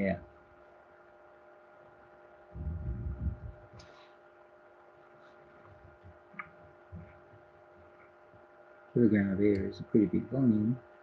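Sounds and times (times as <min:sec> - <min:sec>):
faint electrical hum: 0:00.0 - 0:11.0
man's low murmur: 0:02.6 - 0:03.7.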